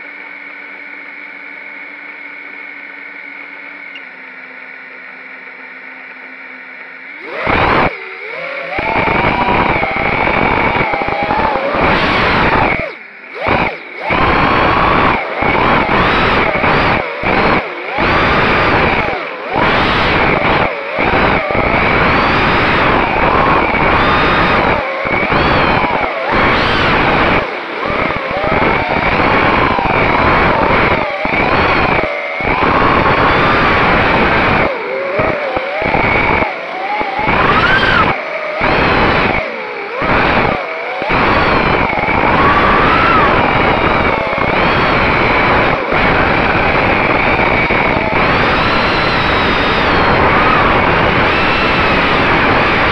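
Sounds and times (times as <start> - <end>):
drone motors and propellers whining: 0.0 - 52.9
wind rush on microphone: 40.0 - 52.9.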